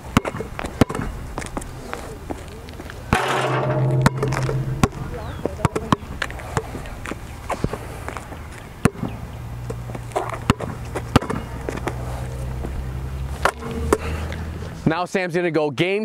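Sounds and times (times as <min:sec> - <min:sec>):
basketball bouncing on asphalt: 0:00.0 - 0:01.6, 0:04.2 - 0:07.8, 0:08.8 - 0:12.0.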